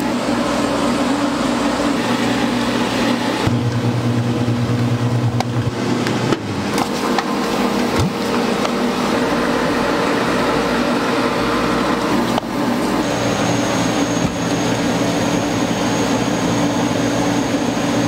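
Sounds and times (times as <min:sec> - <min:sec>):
kitchen equipment humming: 0:00.0 - 0:18.0.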